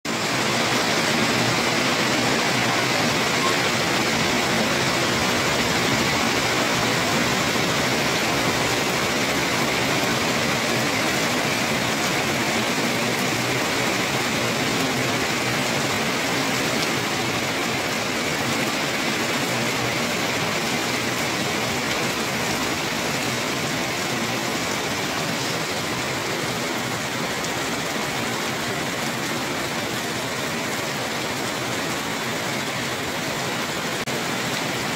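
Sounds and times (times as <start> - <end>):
heavy rain on wet paving: 0.0 - 34.9.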